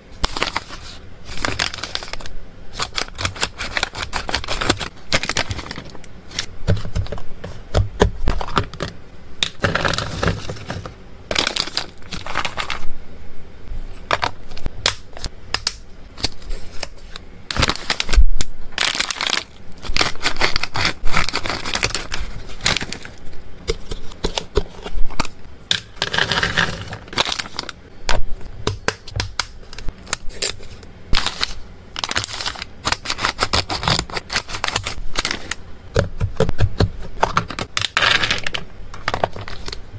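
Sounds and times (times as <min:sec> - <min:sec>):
plastic and foil bags crinkling: 0:00.2 - 0:07.1, 0:08.4 - 0:12.8, 0:16.2 - 0:23.2, 0:26.0 - 0:27.8, 0:30.2 - 0:35.6, 0:37.3 - 0:39.8.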